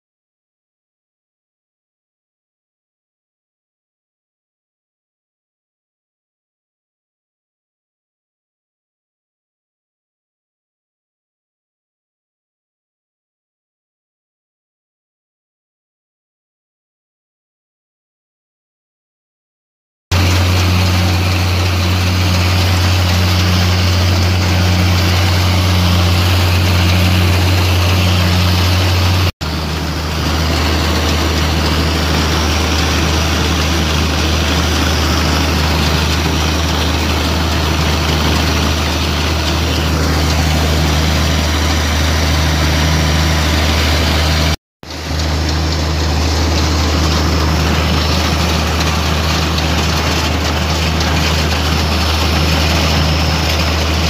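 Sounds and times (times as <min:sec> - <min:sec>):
mower clatter: 0:20.1 - 0:54.0
tractor engine running under load: 0:20.1 - 0:54.0.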